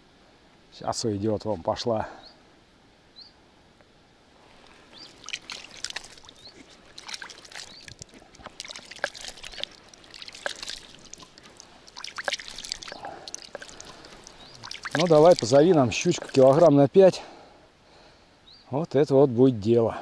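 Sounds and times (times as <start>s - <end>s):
shallow water splashing and trickling: 4.4s - 17.3s.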